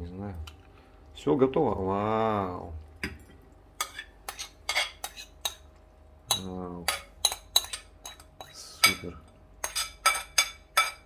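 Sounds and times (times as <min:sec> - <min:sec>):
metal spoon scraping ceramic bowl: 0:03.8 - 0:05.6, 0:06.3 - 0:11.0.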